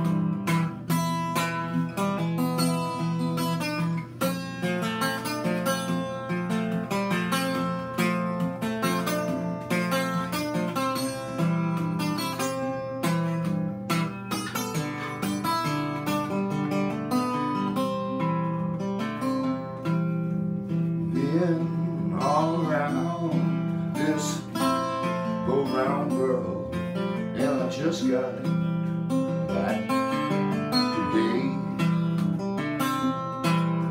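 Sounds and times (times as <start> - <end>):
acoustic guitar playing: 0.0 - 33.9
man singing: 21.0 - 32.0.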